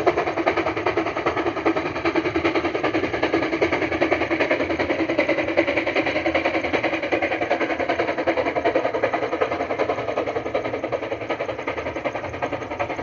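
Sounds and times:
steam locomotive exhaust beating: 0.0 - 13.0.

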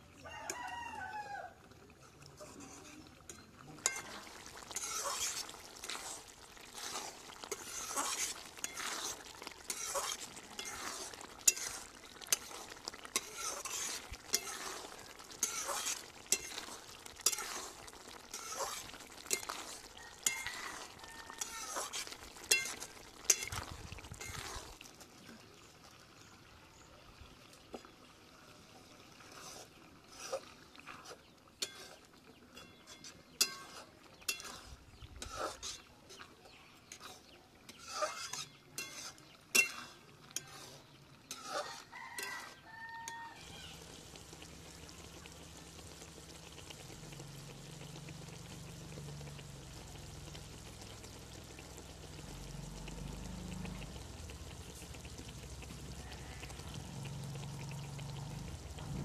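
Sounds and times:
metal cookware stirred and scraped: 1.9 - 24.8, 29.2 - 43.2.

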